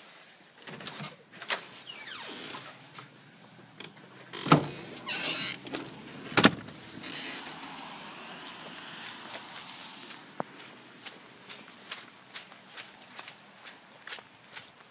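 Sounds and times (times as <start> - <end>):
steady hiss: 0.0 - 13.1
door scraping slide: 0.7 - 10.5.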